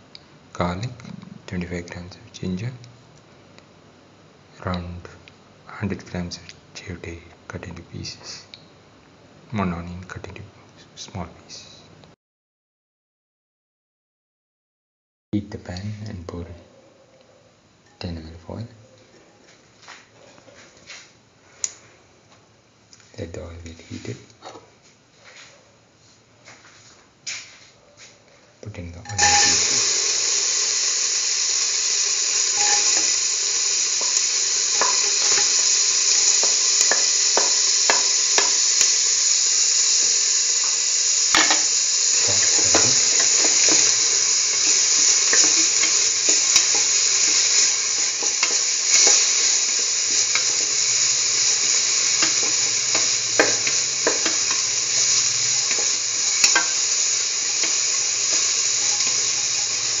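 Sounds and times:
onion sizzling in hot oil: 0:29.1 - 1:00.0.

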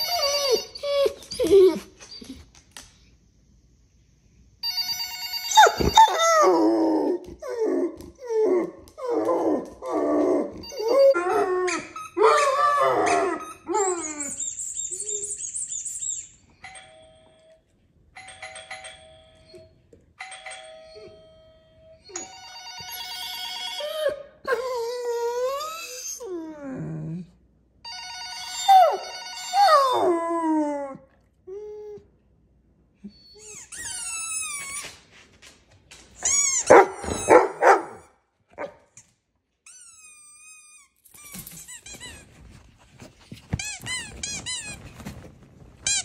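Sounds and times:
doorbell-like chimes: 0:04.6 - 0:06.5, 0:10.6 - 0:11.4, 0:16.6 - 0:24.1, 0:27.9 - 0:30.0.

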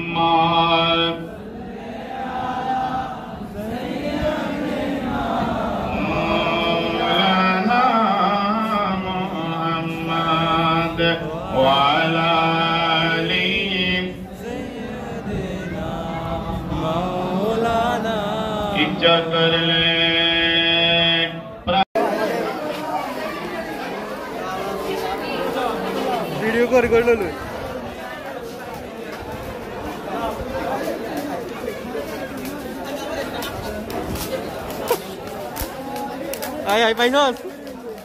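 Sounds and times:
man chanting devotional song: 0:05.9 - 0:21.8.

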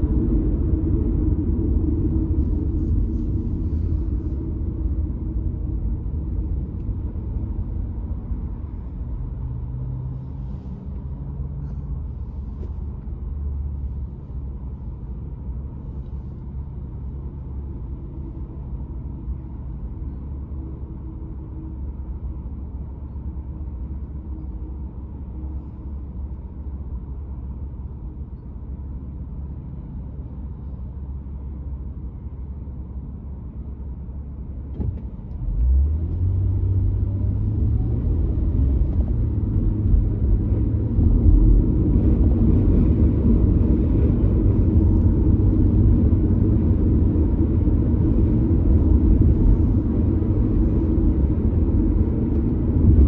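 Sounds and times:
road rumble: 0:00.0 - 0:53.0
car pulling away: 0:34.7 - 0:53.0.

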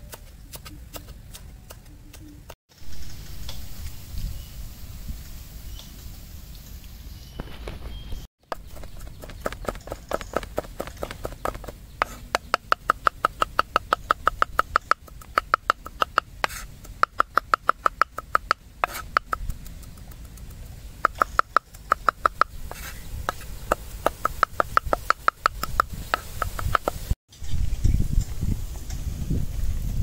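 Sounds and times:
cleaver chopping on wooden board: 0:08.5 - 0:19.5, 0:21.0 - 0:27.0.

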